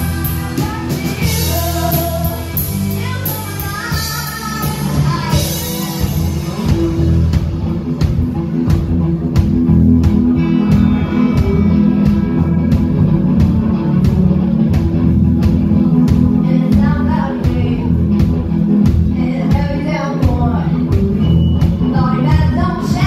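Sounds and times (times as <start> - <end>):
person singing: 0.0 - 6.4
live rock band playing: 0.0 - 23.0.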